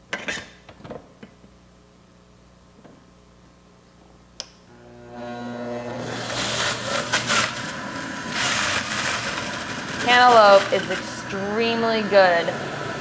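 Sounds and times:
juicer motor whining: 4.7s - 13.0s
cutter shredding fruit: 4.8s - 13.0s.

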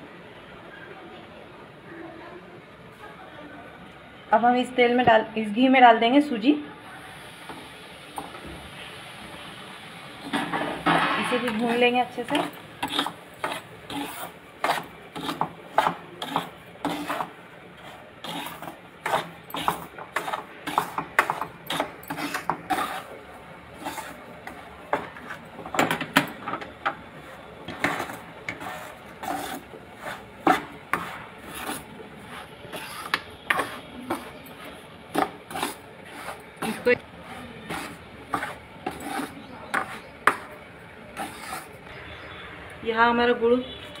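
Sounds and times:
metal spoon scraping a pan: 10.2s - 41.8s.

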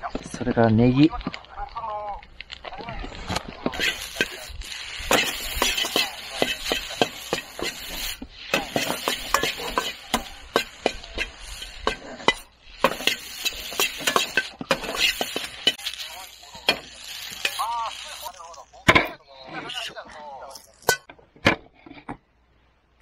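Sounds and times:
food sizzling: 0.0s - 21.1s
spatula scraping and clanking wok: 3.7s - 19.1s.

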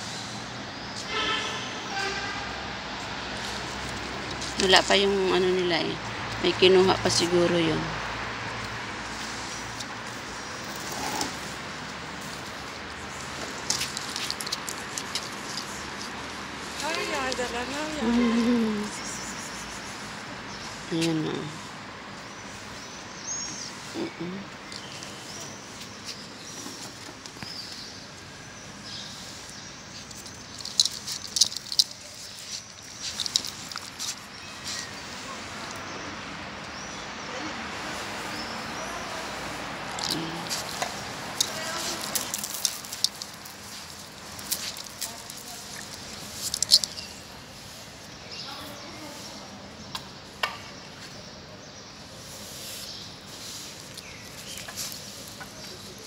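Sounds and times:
outdoor background noise: 0.0s - 56.0s
plastic crinkling: 40.1s - 47.0s.

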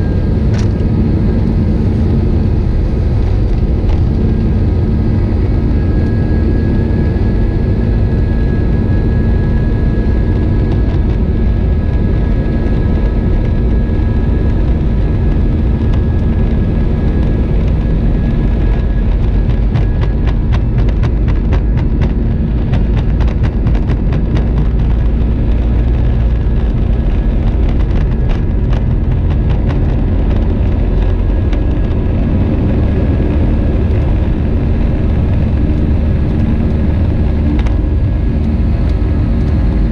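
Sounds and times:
jet engine rumble with fan tone: 0.0s - 39.9s
landing gear thuds on runway: 18.7s - 30.8s.

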